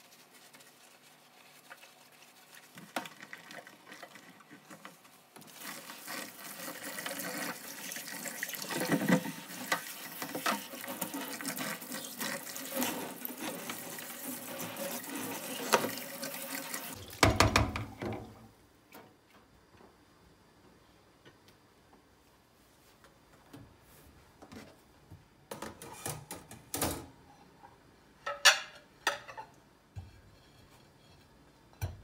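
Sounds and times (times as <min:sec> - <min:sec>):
tap water splashing into sink: 0:15.4 - 0:18.4
knocks against steel sink: 0:17.2 - 0:17.9
drain basket knocking: 0:17.2 - 0:18.1.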